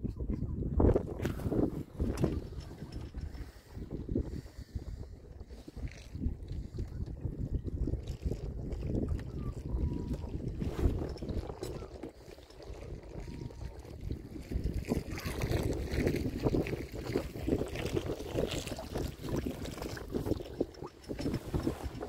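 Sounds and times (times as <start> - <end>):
wind rumbling on microphone: 0.0 - 22.0
waves lapping against boat hull: 0.1 - 22.0.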